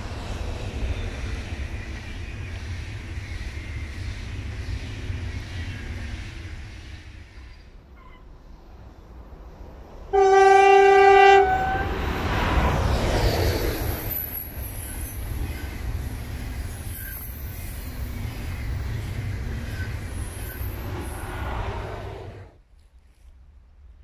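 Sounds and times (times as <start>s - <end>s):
train rumbling past: 0.0s - 22.7s
train horn blast: 10.1s - 12.0s.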